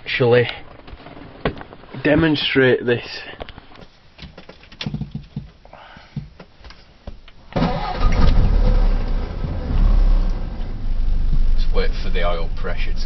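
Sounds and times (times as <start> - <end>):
car engine starting and running: 7.6 - 13.0.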